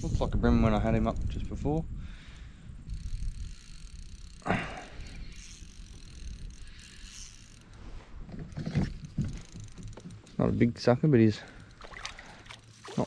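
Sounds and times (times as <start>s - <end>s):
fishing reel gears ticking: 0.0s - 0.4s, 2.4s - 10.4s, 11.2s - 13.0s.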